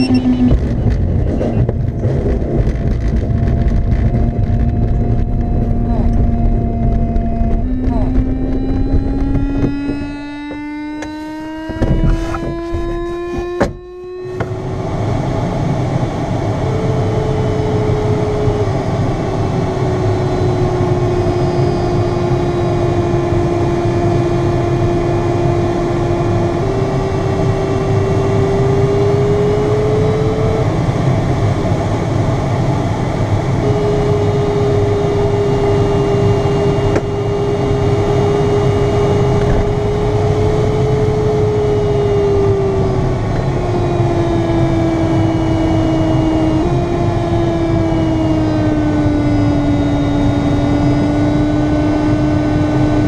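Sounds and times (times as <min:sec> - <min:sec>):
air rushing in cockpit: 0:00.0 - 0:23.4
rising electronic tone: 0:00.0 - 0:30.7, 0:33.6 - 0:53.0
variometer tone shifting pitch: 0:00.0 - 0:53.0
knocks: 0:09.2 - 0:13.8.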